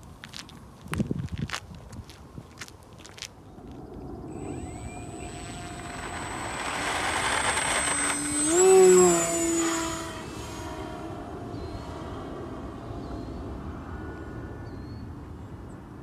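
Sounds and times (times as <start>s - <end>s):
model plane motor and propeller whine: 4.2s - 14.6s.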